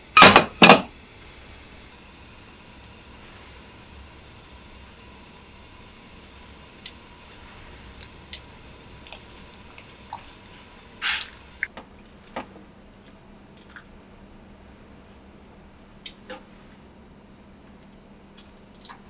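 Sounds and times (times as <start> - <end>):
faint steady hiss: 0.0 - 19.0
small clicks and drips: 5.3 - 7.1, 8.0 - 14.0, 17.7 - 19.0
water splash: 9.0 - 11.7.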